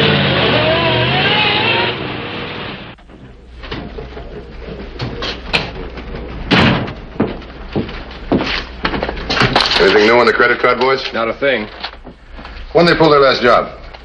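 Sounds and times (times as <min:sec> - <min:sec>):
car driving off: 0:00.0 - 0:03.0
footsteps on a hard floor: 0:03.0 - 0:09.6
knocks: 0:06.4 - 0:09.6
door shutting with a bang: 0:06.5 - 0:07.0.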